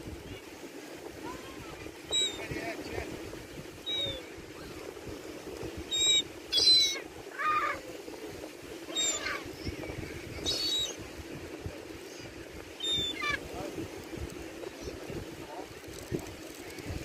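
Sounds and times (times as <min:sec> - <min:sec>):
gulls calling: 0:00.2 - 0:03.1, 0:03.8 - 0:05.0, 0:05.8 - 0:11.2, 0:11.9 - 0:13.6.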